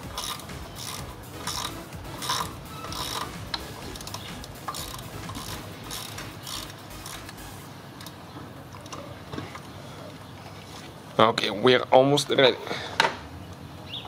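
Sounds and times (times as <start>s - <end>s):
ratcheting wrench clicking: 0.0s - 8.1s.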